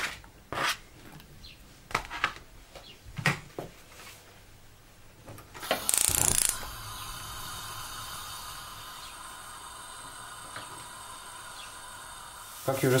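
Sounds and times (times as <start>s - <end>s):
burning gas hissing: 5.6s - 13.0s
gas ignition rattling burst: 5.6s - 13.0s.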